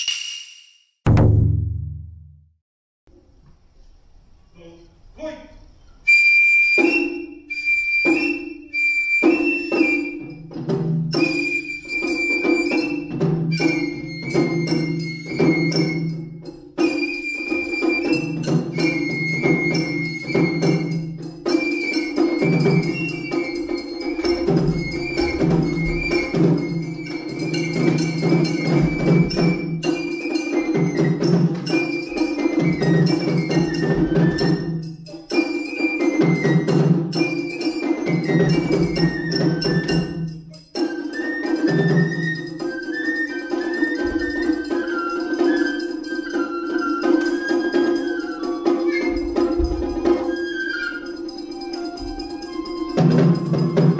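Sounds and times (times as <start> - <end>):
taiko drums rhythm: 1.1 - 2.4, 6.8 - 53.9
bamboo flute melody: 6.0 - 53.9.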